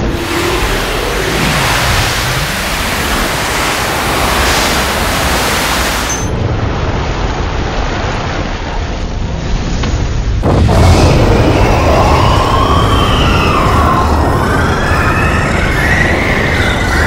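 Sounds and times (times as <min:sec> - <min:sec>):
fiery blast rushing: 0:00.0 - 0:06.1, 0:10.3 - 0:17.0
low rumble: 0:00.0 - 0:17.0.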